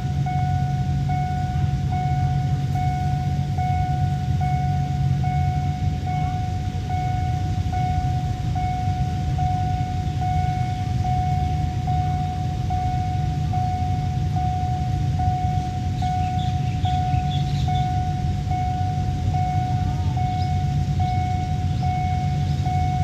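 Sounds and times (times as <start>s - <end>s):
level-crossing warning alarm: 0.0s - 23.0s
low rumble of engines: 0.0s - 23.0s.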